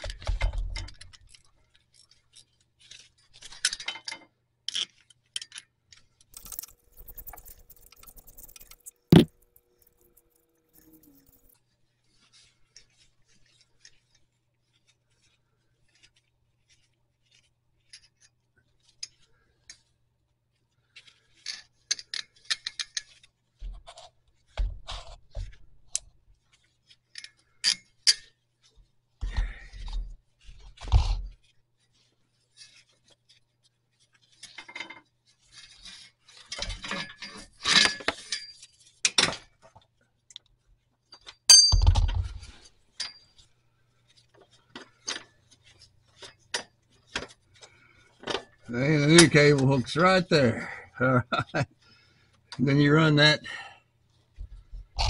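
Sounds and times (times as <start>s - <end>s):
metal cable clinking and rattling: 0.1s - 11.6s, 34.2s - 40.4s.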